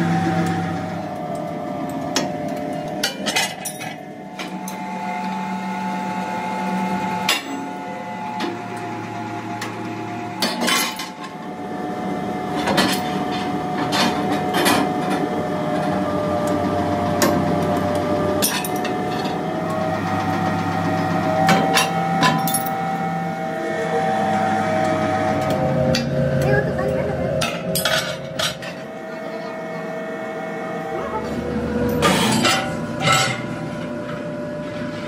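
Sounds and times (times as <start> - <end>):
power press humming: 14.8 - 35.0
sharp metallic clanks: 31.9 - 33.5.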